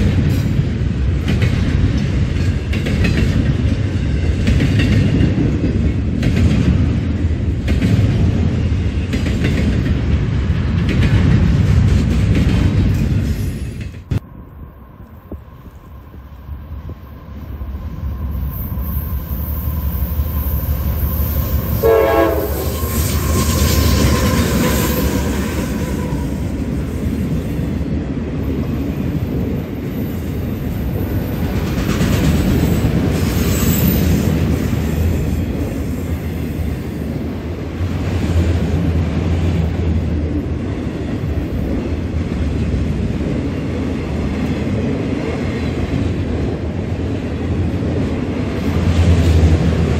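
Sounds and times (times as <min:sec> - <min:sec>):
diesel locomotives passing: 0:00.0 - 0:49.9
train rumble and wheel clatter: 0:00.0 - 0:49.9
train horn blast: 0:21.5 - 0:26.4.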